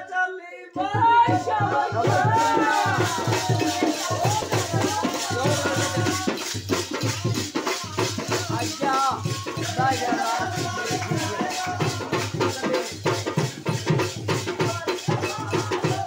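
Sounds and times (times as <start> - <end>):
person singing: 0.0 - 13.4
hand drum beat: 0.8 - 16.0
jingling rattling percussion: 0.8 - 16.0.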